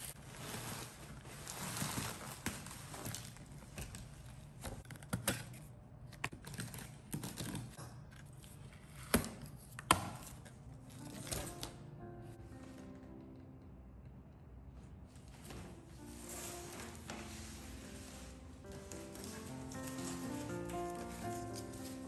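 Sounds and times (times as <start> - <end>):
faint music: 6.2 - 22.0
cardboard box rustling and scraping: 16.0 - 22.0.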